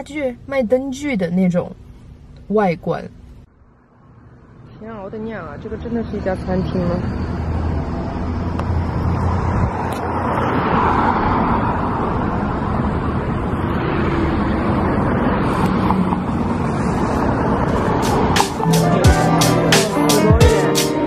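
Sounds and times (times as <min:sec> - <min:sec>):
cars driving past: 0:03.4 - 0:20.3.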